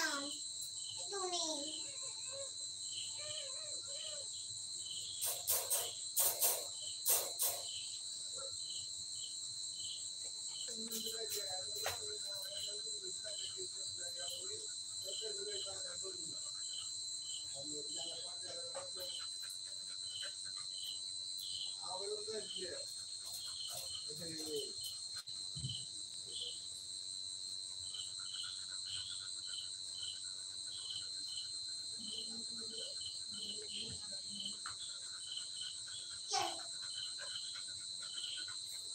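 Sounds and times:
crickets trilling: 0:00.0 - 0:38.9
insect chirping: 0:00.0 - 0:38.9.

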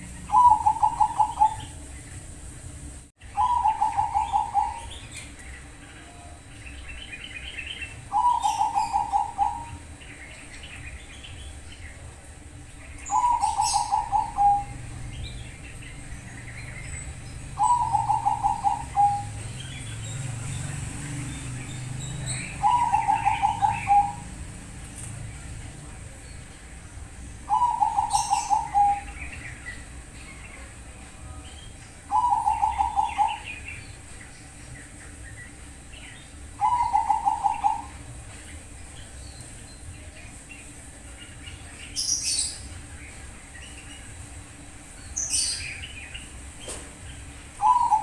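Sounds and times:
dove cooing: 0:00.0 - 0:01.9, 0:03.3 - 0:05.4, 0:07.4 - 0:10.0, 0:12.9 - 0:20.2, 0:21.7 - 0:24.8, 0:27.4 - 0:29.8, 0:32.1 - 0:33.9, 0:36.5 - 0:38.1, 0:47.5 - 0:48.0
small birds chirping: 0:00.0 - 0:48.0.

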